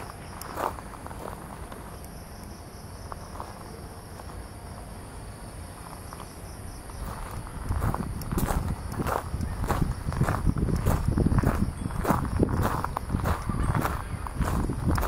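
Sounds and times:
footsteps on gravel: 0:00.0 - 0:02.0, 0:05.8 - 0:15.0
crickets chirping: 0:00.0 - 0:15.0.

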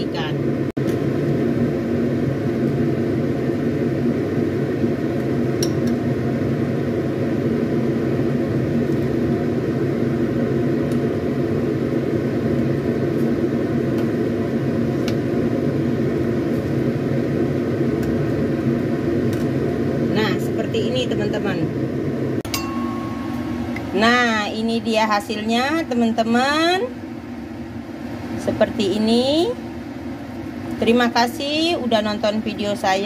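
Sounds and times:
appliance motor hum: 0:00.0 - 0:33.0
ladle clinking: 0:22.5 - 0:23.9.

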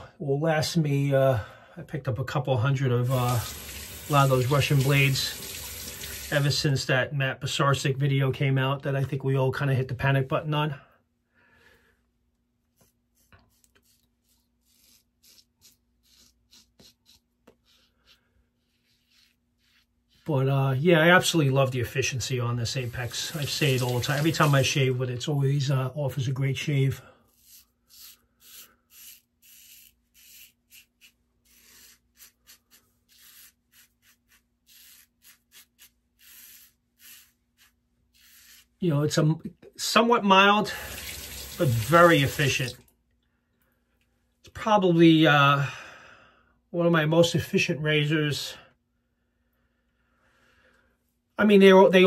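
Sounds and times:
razor scraping stubble: 0:03.1 - 0:04.9, 0:12.7 - 0:20.3, 0:27.3 - 0:38.8.

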